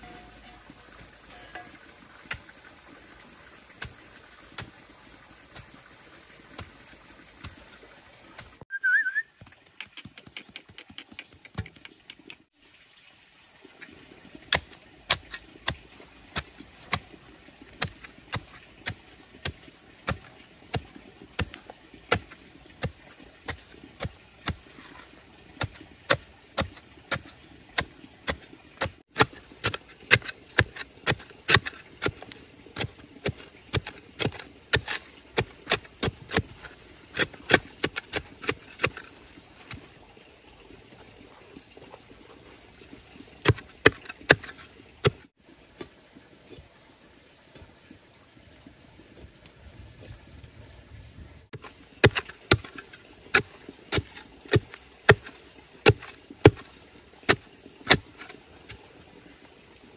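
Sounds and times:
blade chopping bamboo: 0:00.0 - 0:02.4, 0:17.8 - 0:39.1, 0:43.4 - 0:45.3, 0:51.6 - 0:58.4
insect drone: 0:00.0 - 0:59.9
bird chirp: 0:08.7 - 0:12.5.

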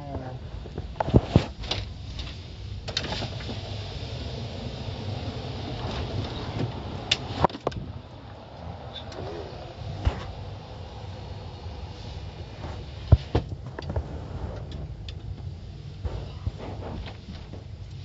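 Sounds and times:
car engine and road hum: 0:00.0 - 0:18.0.

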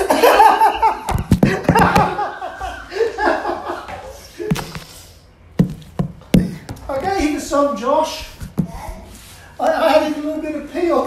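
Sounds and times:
person laughing: 0:00.0 - 0:03.6
sharp knocks and thumps: 0:01.1 - 0:02.3, 0:04.5 - 0:04.9, 0:05.6 - 0:07.6, 0:08.2 - 0:09.1.

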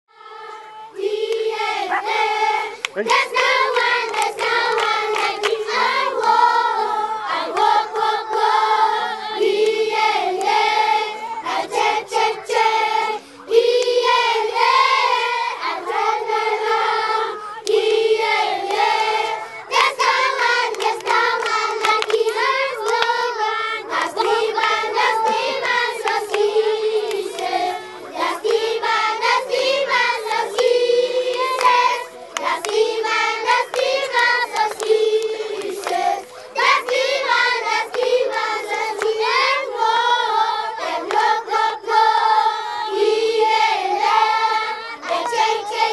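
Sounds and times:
children singing in chorus: 0:00.1 - 0:45.9
hand claps: 0:01.2 - 0:01.5, 0:02.8 - 0:06.4, 0:07.5 - 0:08.4, 0:09.6 - 0:10.6, 0:17.6 - 0:17.9, 0:18.6 - 0:23.4, 0:24.0 - 0:27.6, 0:28.4 - 0:28.8, 0:29.5 - 0:39.2, 0:41.0 - 0:41.3.

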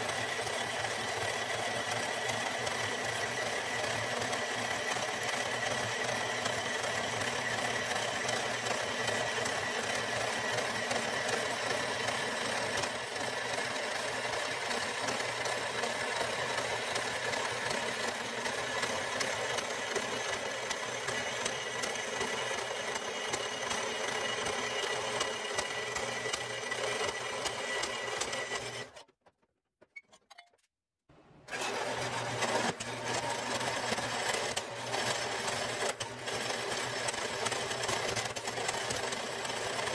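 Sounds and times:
band saw cutting steel: 0:00.0 - 0:29.0.

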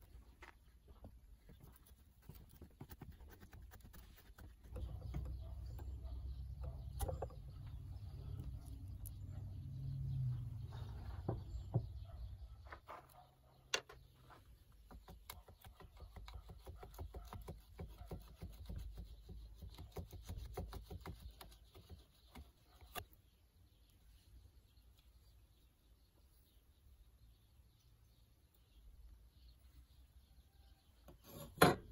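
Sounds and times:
steel scraping against wood: 0:31.1 - 0:31.9.

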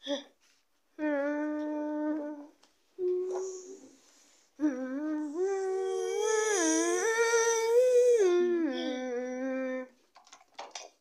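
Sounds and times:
person humming a tune: 0:01.0 - 0:04.0, 0:04.6 - 0:09.9.

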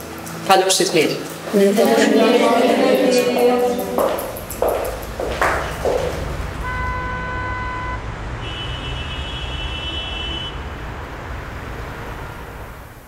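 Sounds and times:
road traffic noise: 0:01.3 - 0:13.0
sustained horn tones: 0:01.6 - 0:10.7.

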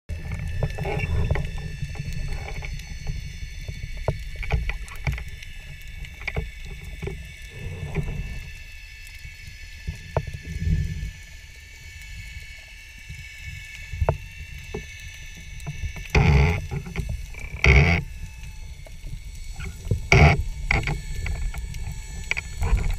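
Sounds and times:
muffled underwater rumble: 0:00.1 - 0:22.9.

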